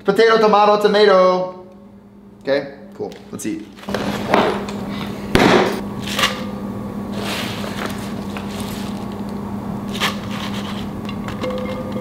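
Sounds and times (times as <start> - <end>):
low hum: 4.6 - 12.0
glass bowl and fork clinking: 11.4 - 12.0.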